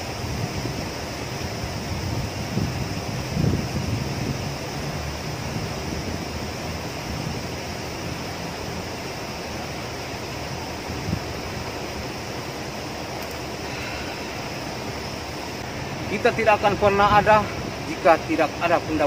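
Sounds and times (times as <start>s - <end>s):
river rushing over rocks: 0.0s - 19.0s.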